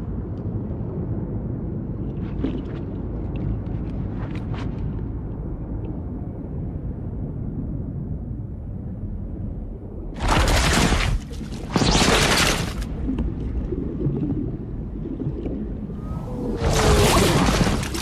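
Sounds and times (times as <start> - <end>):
bullets zipping through water: 10.2 - 12.9, 16.5 - 18.0
muffled underwater rumble: 12.9 - 18.0.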